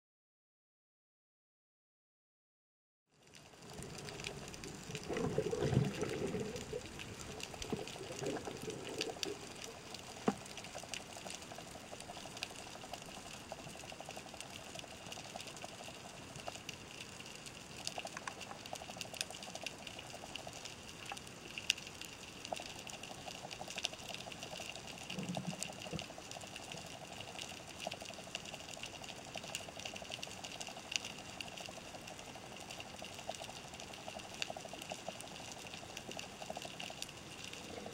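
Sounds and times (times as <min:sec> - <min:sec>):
clicks and crackles: 0:03.2 - 0:37.9
underwater hiss and hum: 0:03.2 - 0:37.9
water rushing past: 0:03.6 - 0:09.5.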